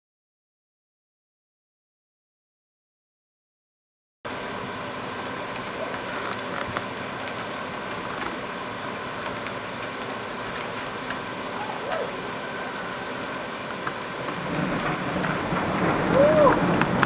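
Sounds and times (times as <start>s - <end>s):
raindrops ticking close by: 4.3s - 17.0s
steady rain hiss: 4.3s - 17.0s.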